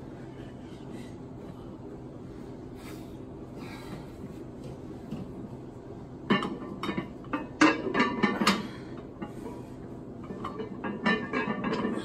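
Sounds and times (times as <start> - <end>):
barbell plates clanking: 6.3 - 9.6, 10.2 - 12.0.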